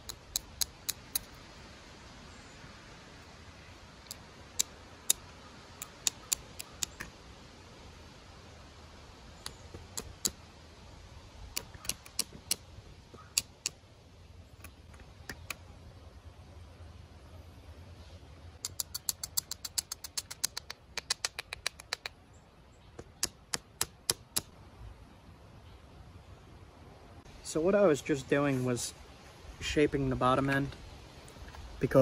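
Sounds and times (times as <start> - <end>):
stone clicks from billet tapping flake: 0.0 - 1.3, 5.8 - 7.1.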